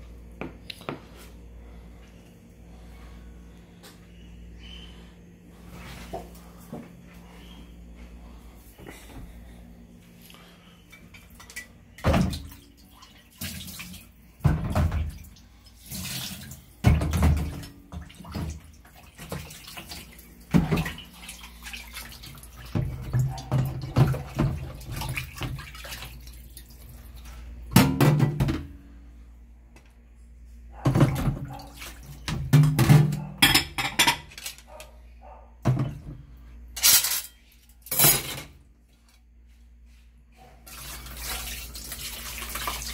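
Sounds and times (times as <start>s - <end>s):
colander and dishes clattering: 27.7s - 28.7s, 32.3s - 34.6s, 36.8s - 38.6s.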